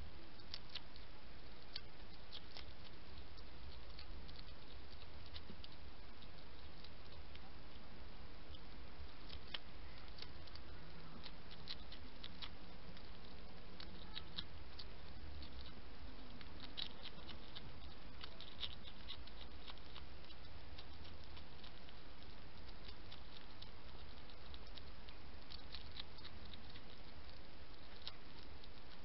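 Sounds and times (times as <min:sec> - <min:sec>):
hedgehog chewing and snuffling: 0:00.0 - 0:29.0
steady low hum: 0:00.0 - 0:29.0.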